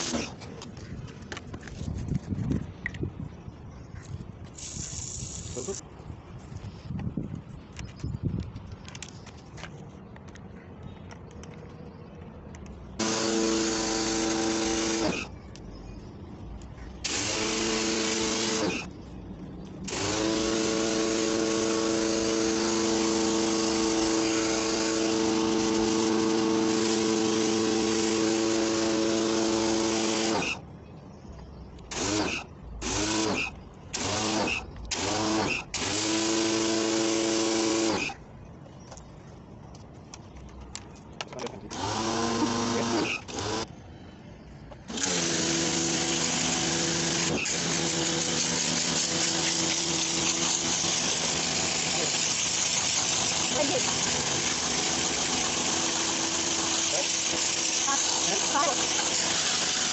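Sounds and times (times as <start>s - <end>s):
water spray hissing: 4.5s - 5.8s
pressure washer motor whining: 13.0s - 15.3s, 19.9s - 30.6s, 41.7s - 43.6s, 44.9s - 59.9s.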